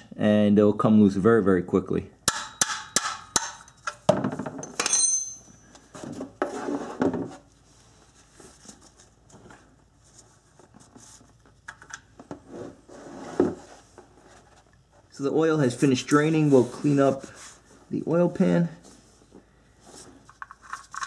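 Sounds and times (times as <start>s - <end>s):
metal-on-metal clinks: 4.6s - 5.8s.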